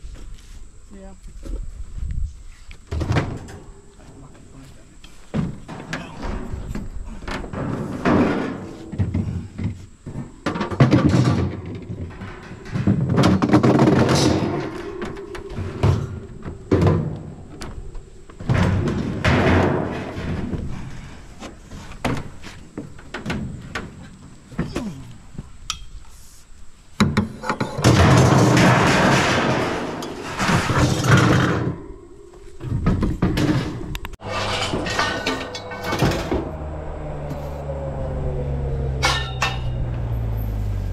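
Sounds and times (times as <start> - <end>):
metal appliances thudding and scraping: 5.3 - 21.0, 27.0 - 32.0, 32.6 - 37.7, 39.0 - 40.1.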